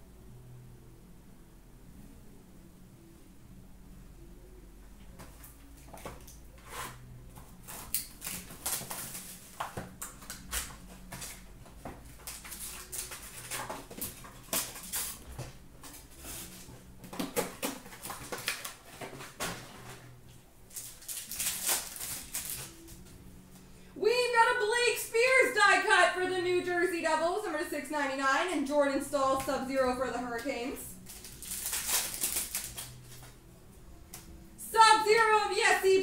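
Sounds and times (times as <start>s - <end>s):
faint low hum: 0.0s - 36.0s
wrappers crinkling and tearing: 5.7s - 23.0s, 30.9s - 33.4s.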